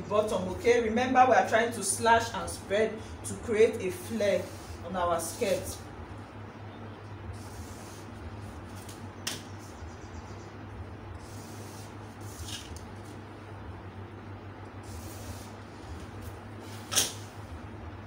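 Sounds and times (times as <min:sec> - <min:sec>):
steady low hum: 0:00.0 - 0:18.0
marker pen scratching on paper: 0:07.3 - 0:08.9, 0:11.2 - 0:13.2.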